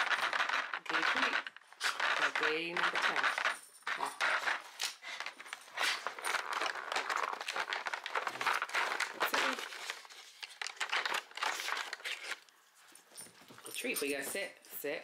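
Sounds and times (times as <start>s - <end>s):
plastic tray crinkling: 0.0s - 4.6s, 5.2s - 12.5s
cardboard tearing: 5.8s - 12.4s.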